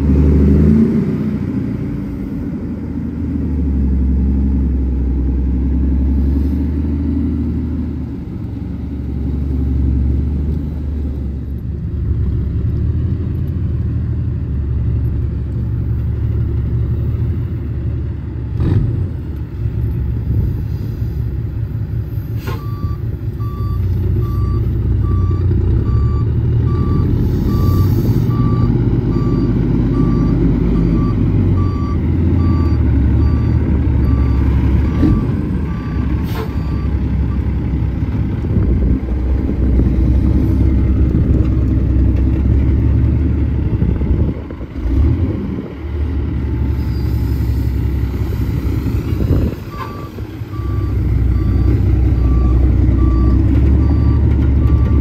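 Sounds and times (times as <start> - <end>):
diesel truck engine running: 0.0 - 55.0
reversing alarm beeping: 22.6 - 37.5, 49.7 - 55.0.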